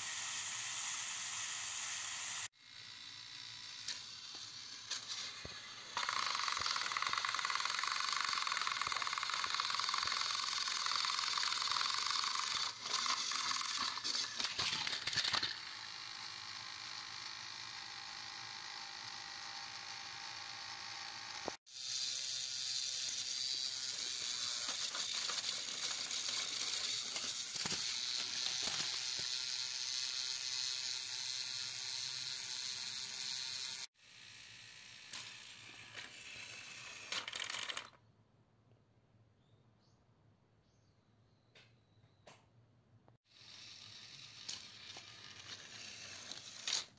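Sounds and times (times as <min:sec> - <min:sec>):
toy train motors whirring: 0:00.0 - 0:38.0, 0:43.2 - 0:46.9
toy trains clattering off track: 0:03.4 - 0:18.6, 0:19.5 - 0:33.8, 0:34.8 - 0:38.0, 0:43.3 - 0:46.9.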